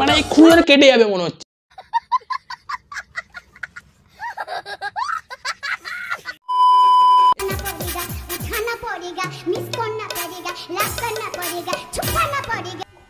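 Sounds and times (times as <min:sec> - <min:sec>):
child laughing and squealing: 0:02.5 - 0:06.4
test-pattern beep: 0:06.5 - 0:07.4
music: 0:07.4 - 0:13.0.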